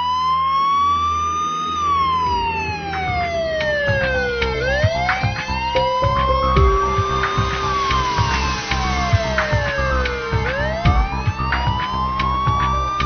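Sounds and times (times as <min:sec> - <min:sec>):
police siren wailing: 0:00.0 - 0:13.0.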